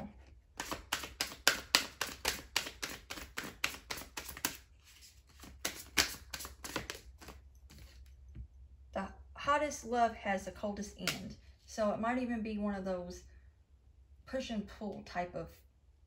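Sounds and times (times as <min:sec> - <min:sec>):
cards being shuffled: 0:00.6 - 0:08.1.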